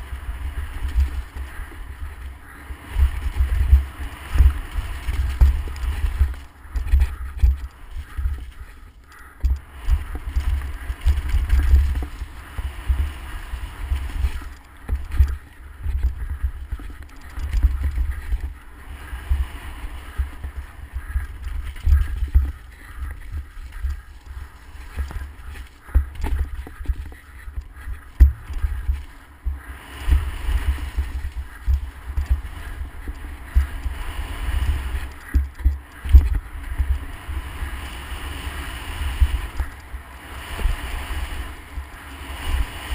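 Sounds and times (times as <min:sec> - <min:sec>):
wind buffeting microphone: 0:00.0 - 0:42.9
bike knocks and rattles: 0:03.0 - 0:13.1, 0:13.9 - 0:18.6, 0:20.1 - 0:29.6.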